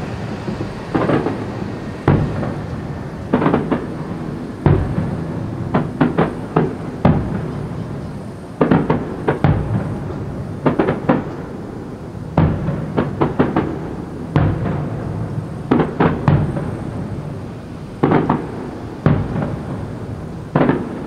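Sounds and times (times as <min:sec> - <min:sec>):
low rumble: 0:00.0 - 0:05.8
firework shells bursting: 0:00.0 - 0:21.0.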